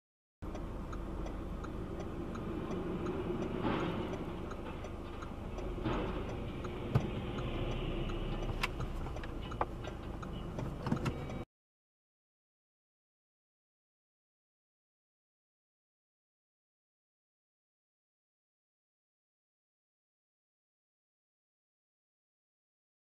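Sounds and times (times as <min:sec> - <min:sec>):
faint regular ticking: 0:00.4 - 0:11.4
car road rumble from inside: 0:00.4 - 0:11.5.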